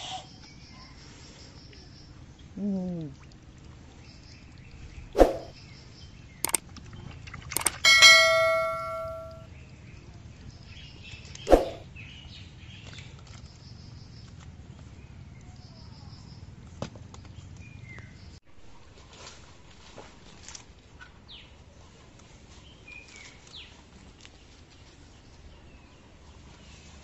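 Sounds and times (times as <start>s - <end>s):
quick clicks: 6.4s - 6.6s, 7.5s - 9.4s
bright bell ding: 7.6s - 9.4s.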